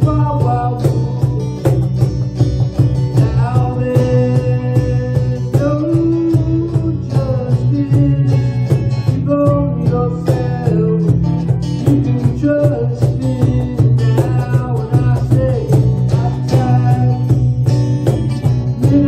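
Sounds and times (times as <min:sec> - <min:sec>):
cajon beat: 0:00.0 - 0:19.0
strummed guitars: 0:00.0 - 0:19.0.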